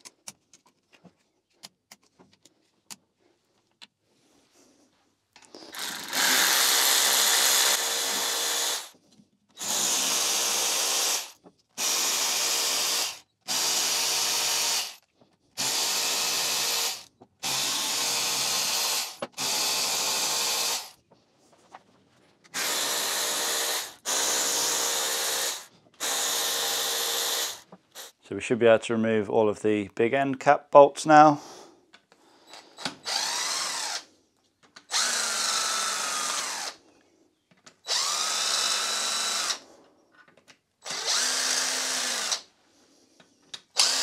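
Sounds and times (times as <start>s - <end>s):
cordless ratchet running: 5.7s - 8.9s, 37.9s - 39.6s, 40.8s - 42.4s, 43.7s - 44.0s.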